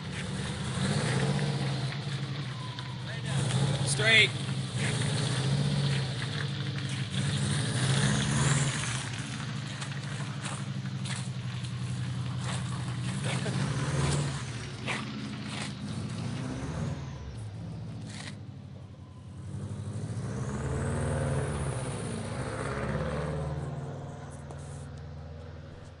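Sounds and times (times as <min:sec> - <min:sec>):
car engine revving: 0:00.0 - 0:26.0.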